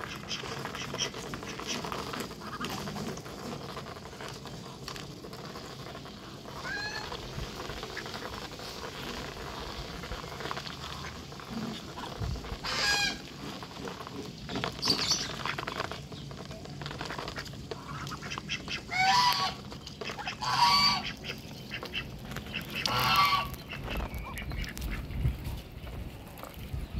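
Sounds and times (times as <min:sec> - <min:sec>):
bills pecking grain off tray: 0:00.0 - 0:26.9
geese honking: 0:06.5 - 0:08.5, 0:12.6 - 0:13.5, 0:17.1 - 0:25.1.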